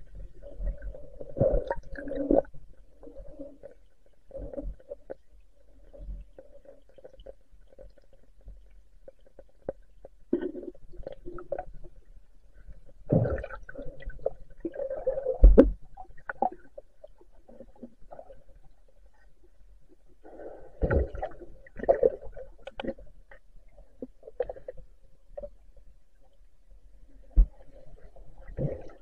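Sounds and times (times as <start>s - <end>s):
underwater gurgling and bubbling: 0.0s - 8.4s, 9.2s - 12.1s, 12.8s - 19.2s, 20.2s - 23.1s, 27.3s - 29.0s.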